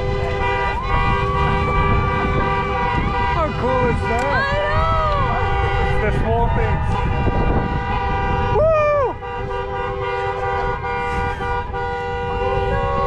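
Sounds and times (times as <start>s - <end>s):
car horns honking: 0.0s - 13.0s
person whooping: 8.6s - 9.2s.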